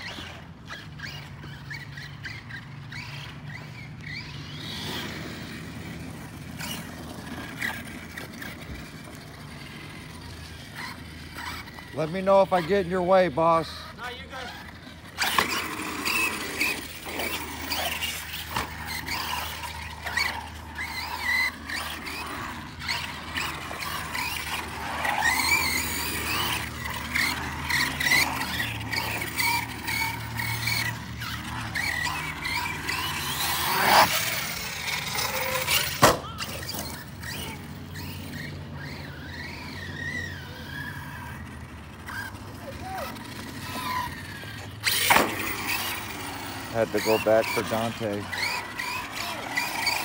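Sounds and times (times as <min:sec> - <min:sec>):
electric motor whine: 0:00.0 - 0:50.0
tyres squealing on concrete: 0:00.0 - 0:50.0.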